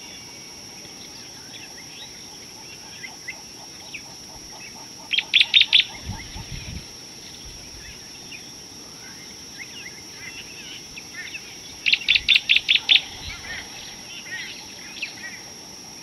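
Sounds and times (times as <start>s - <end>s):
sharp bird calls: 1.0s - 6.8s, 9.6s - 15.6s.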